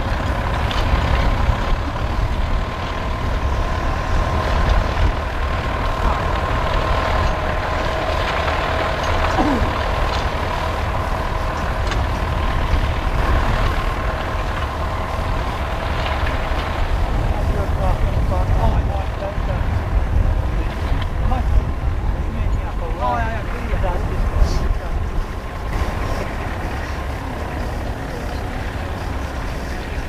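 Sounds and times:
tractor engine running under load: 0.0s - 30.0s.

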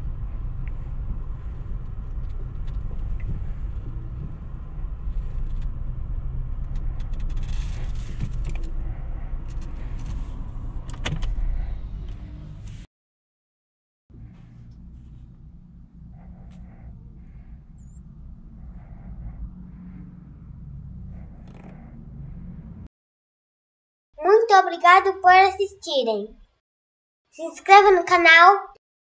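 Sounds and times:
car engine and tyre rumble: 0.0s - 12.9s, 14.1s - 22.9s.

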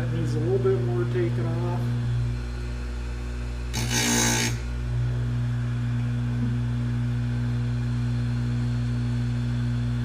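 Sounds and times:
grinder motor humming: 0.0s - 10.0s
grinding wheel hissing on chain: 3.8s - 4.6s.

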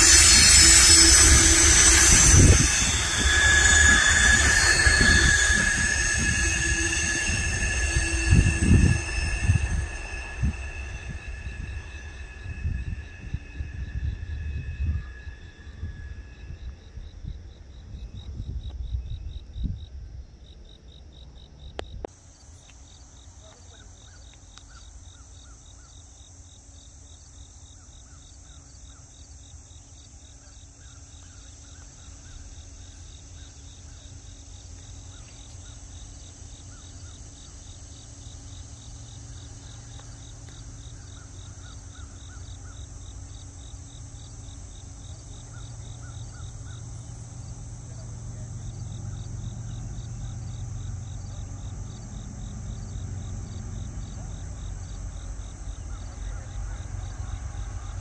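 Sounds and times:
low rumble: 0.0s - 19.6s, 42.8s - 58.0s
crickets chirping: 0.0s - 58.0s
high insect hiss: 0.0s - 58.0s.

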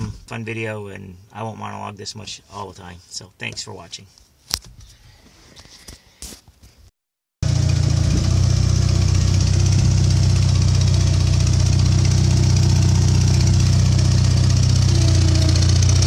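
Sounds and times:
loader engine running: 7.4s - 16.0s.

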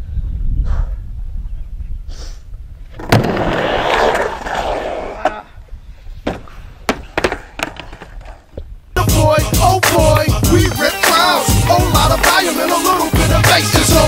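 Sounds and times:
skateboard wheels rolling on wood: 2.8s - 8.7s
skateboard clattering on ramp: 2.9s - 5.4s, 6.2s - 8.6s
skateboard landing clack: 2.9s - 5.4s, 6.2s - 8.7s.

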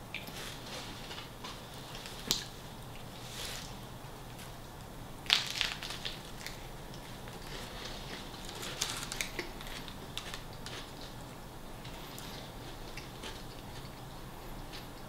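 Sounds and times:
bread crunching while chewed: 5.2s - 15.0s.

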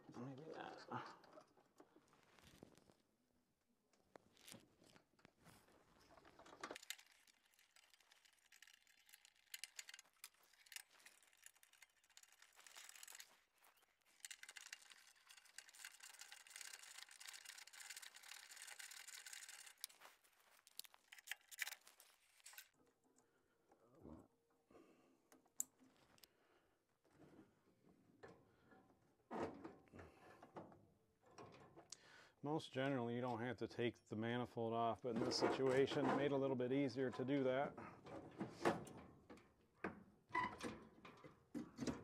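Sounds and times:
faint clicks and rustling: 3.9s - 24.0s.

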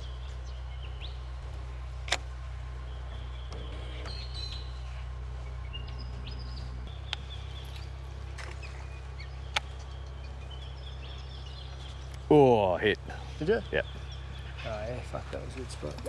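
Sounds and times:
birds chirping: 0.0s - 16.0s
low hum: 0.0s - 16.0s
sharp clicks: 9.5s - 10.0s.

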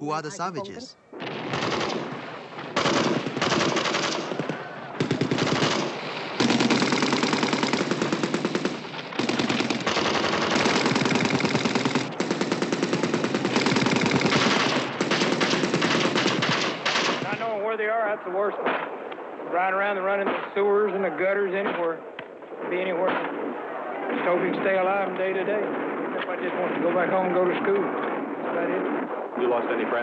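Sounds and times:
automatic rifle fire: 1.2s - 17.5s.

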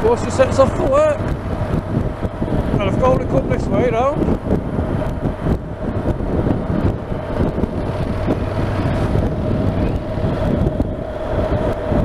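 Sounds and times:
motorcycle engine cruising: 0.0s - 12.0s
wind rumble on microphone: 0.0s - 12.0s.

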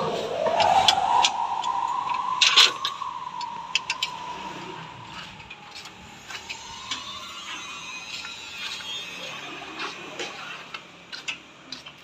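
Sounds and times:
steady mechanical whine: 0.0s - 11.6s.

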